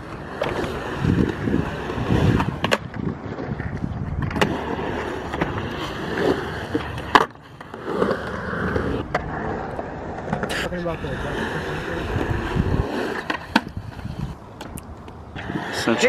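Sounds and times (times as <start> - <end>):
skateboard clacks: 0.0 - 8.2, 13.1 - 16.0
skateboard wheels rolling on concrete: 0.0 - 16.0.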